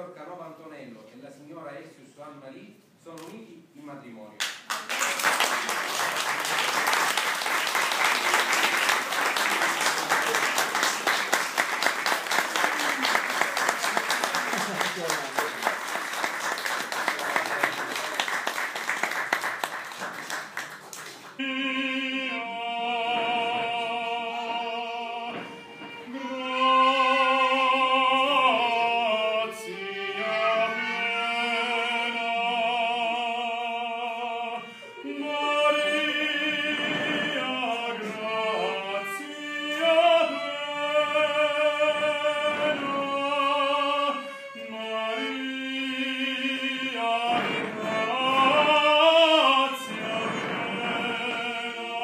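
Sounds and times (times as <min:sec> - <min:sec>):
applause: 0:04.4 - 0:21.4
operatic voice singing: 0:21.4 - 0:52.0
violin: 0:21.4 - 0:52.0.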